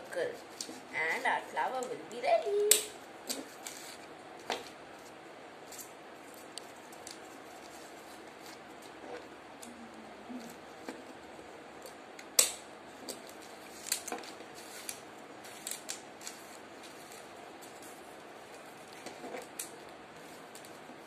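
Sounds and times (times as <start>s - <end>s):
paper rustling: 3.4s - 9.3s, 13.0s - 21.0s.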